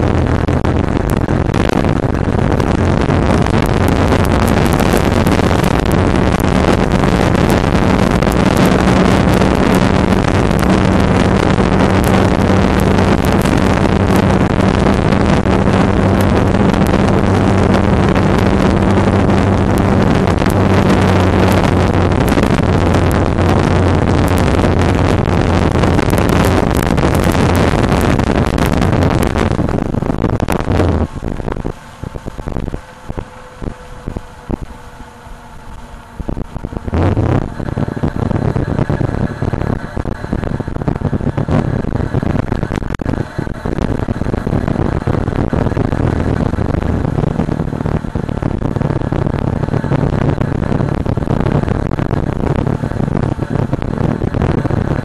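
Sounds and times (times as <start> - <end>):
steady low hum: 0.0 - 55.0
ticking: 0.0 - 55.0
wind rushing over microphone: 0.0 - 55.0.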